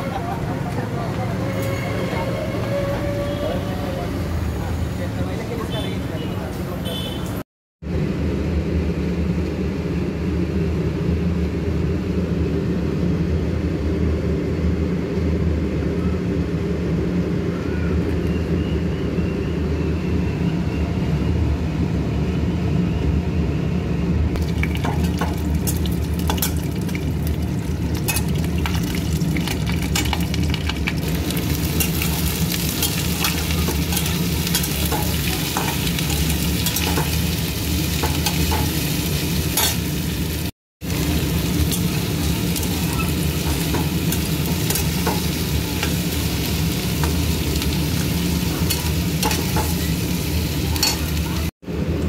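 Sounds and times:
onions sizzling in oil: 24.4 - 51.5.

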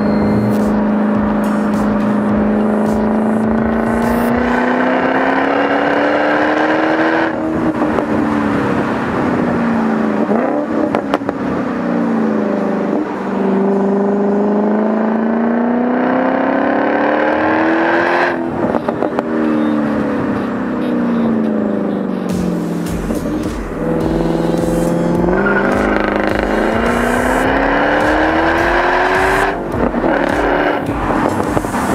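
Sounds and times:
car engine accelerating: 0.0 - 31.9.

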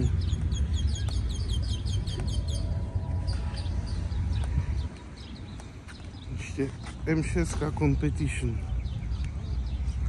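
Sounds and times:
low rumble: 0.0 - 5.6
bird chirping: 0.0 - 10.0.

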